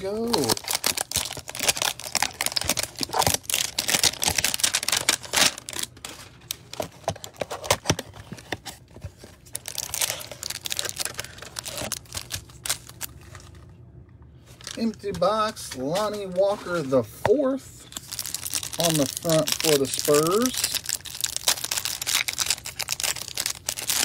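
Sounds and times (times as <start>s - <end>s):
foil crinkling: 0.0s - 8.5s, 9.4s - 13.6s, 17.9s - 24.0s.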